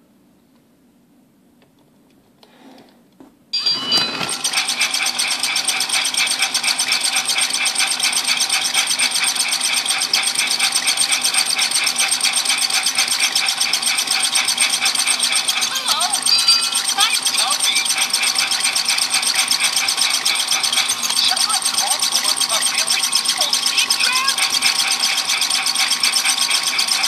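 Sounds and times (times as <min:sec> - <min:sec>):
toy train motor whirring: 0:03.6 - 0:27.0.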